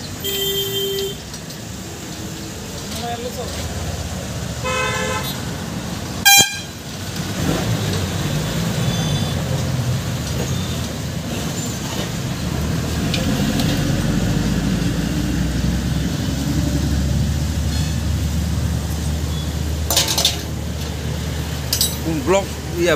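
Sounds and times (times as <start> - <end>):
road traffic rumble: 0.0 - 22.9
vehicle horn toot: 0.2 - 1.2, 4.6 - 5.5, 6.2 - 6.8.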